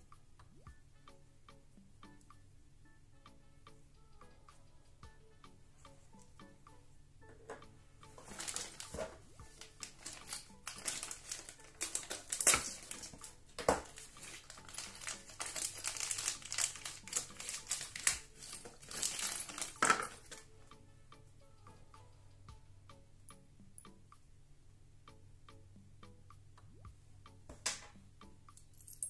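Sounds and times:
plastic bag crinkling: 0:08.2 - 0:20.4.

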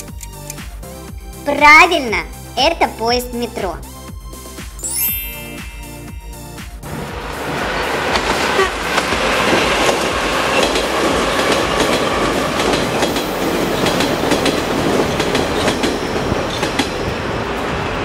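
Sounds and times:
metro trains passing: 0:05.4 - 0:18.0.

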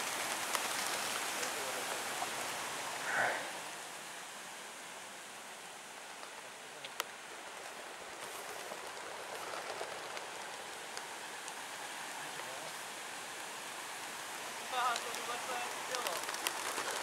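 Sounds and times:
pigeon wings rushing hiss: 0:00.0 - 0:03.9, 0:07.4 - 0:12.9, 0:14.7 - 0:17.0.

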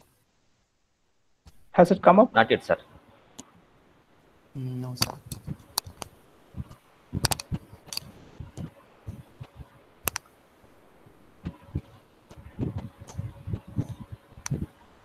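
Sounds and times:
keyboard and mouse clicks: 0:05.0 - 0:10.3.

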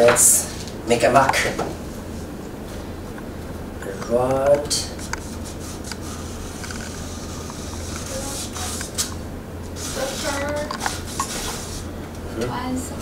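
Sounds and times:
low hum: 0:00.0 - 0:13.0
marker scratching on wood: 0:04.9 - 0:09.1, 0:09.8 - 0:11.9.

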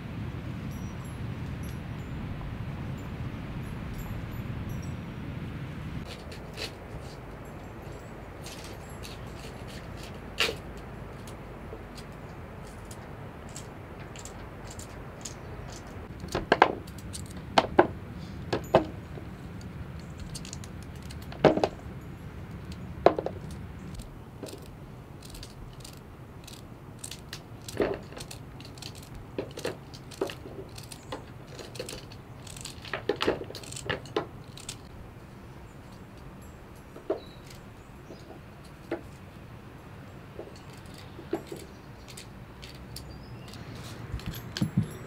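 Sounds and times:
low steady hum: 0:00.0 - 0:32.8.

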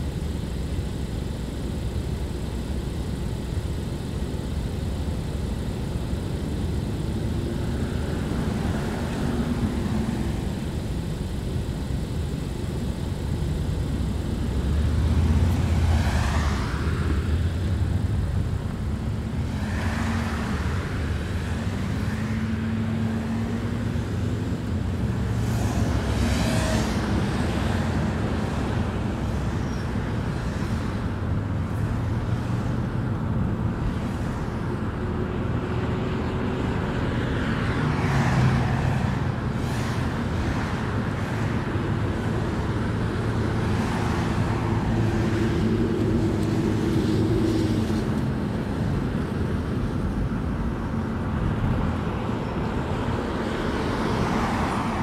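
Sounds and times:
road and tyre noise: 0:00.0 - 0:55.0
vehicles swooshing past: 0:14.7 - 0:30.9, 0:35.4 - 0:55.0.

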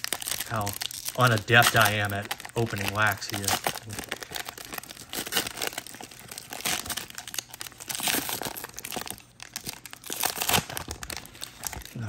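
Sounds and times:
card pack wrapper crinkling: 0:00.0 - 0:12.0.

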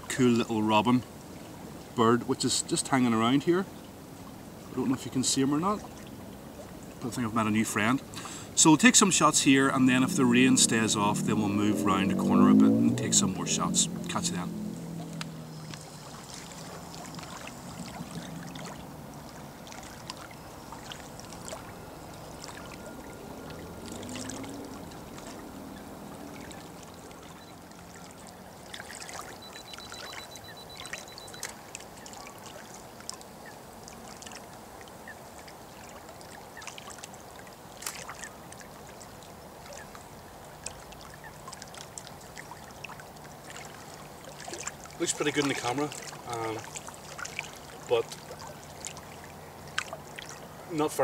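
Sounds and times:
water lapping against stones: 0:04.2 - 0:51.0
small splashes and clicks: 0:14.9 - 0:50.5.

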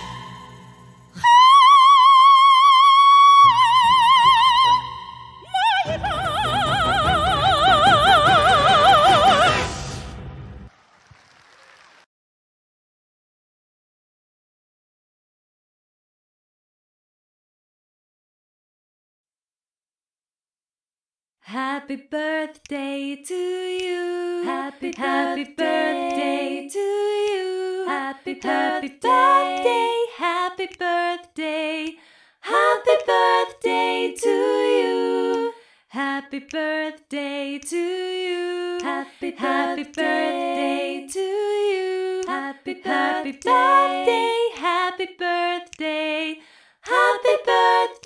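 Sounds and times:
people singing in harmony: 0:00.0 - 0:02.2, 0:03.6 - 0:09.9, 0:21.5 - 0:48.0.

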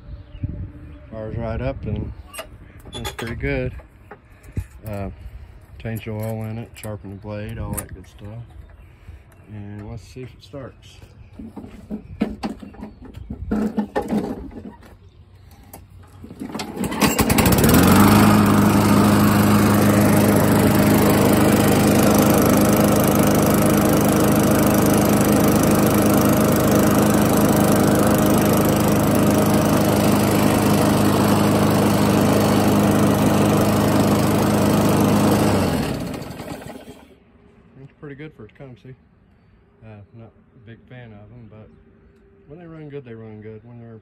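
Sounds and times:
lawn mower engine running: 0:13.5 - 0:14.9, 0:15.6 - 0:37.2.

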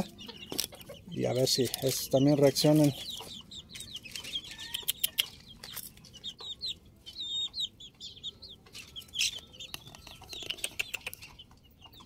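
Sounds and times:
chicks peeping and clucking: 0:00.0 - 0:12.0
scattered clicks: 0:09.7 - 0:11.3.

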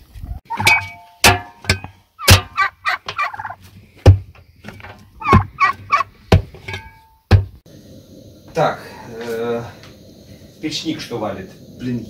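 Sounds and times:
poultry calling harshly: 0:02.2 - 0:06.3.

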